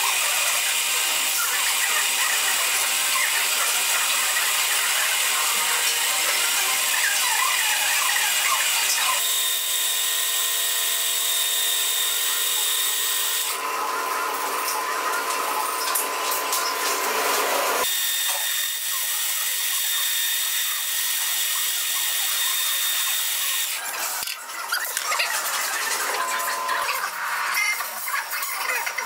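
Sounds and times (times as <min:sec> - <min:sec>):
lathe motor whine: 0:00.0 - 0:24.4
metal lathe cutting rod: 0:00.0 - 0:26.8.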